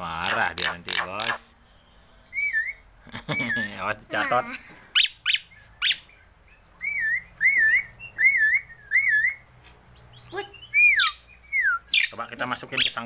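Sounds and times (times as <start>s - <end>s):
bird whistling: 0.9s - 3.7s, 5.0s - 9.5s, 10.1s - 12.2s.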